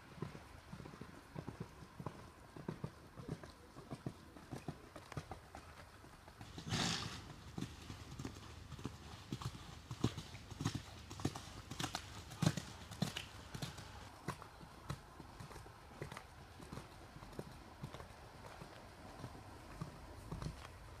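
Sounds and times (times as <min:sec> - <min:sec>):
horse hooves clip-clopping: 0:00.0 - 0:21.0
horse snorting breath: 0:06.4 - 0:14.1.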